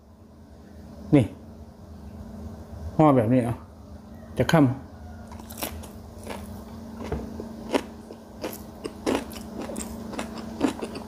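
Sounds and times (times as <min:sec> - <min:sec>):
close-up chewing with crunches: 0:05.2 - 0:11.0.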